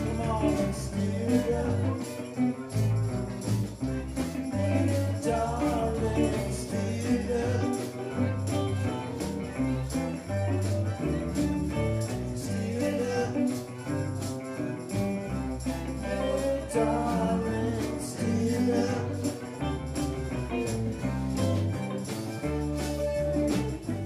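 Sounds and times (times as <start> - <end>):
person singing: 0.0 - 3.1, 4.0 - 10.2, 12.0 - 14.2, 15.5 - 22.0
hand shaker: 0.0 - 24.0
reggae band playing: 0.0 - 24.0.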